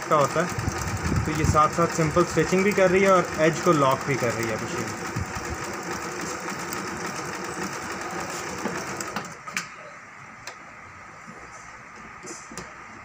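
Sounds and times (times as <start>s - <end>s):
sewing machine running: 0.0s - 9.4s.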